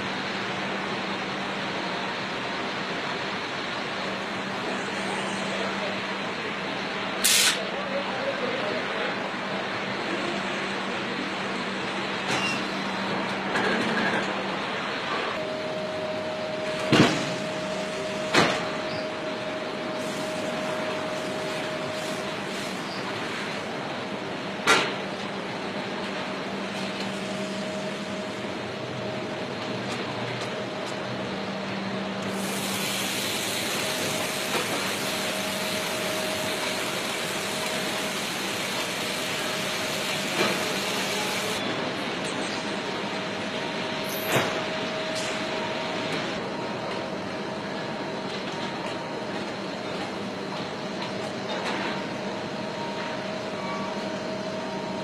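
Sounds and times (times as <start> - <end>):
machinery hiss: 7.2 - 7.7, 19.9 - 23.1, 32.2 - 41.6
constant machine tone: 7.8 - 55.0.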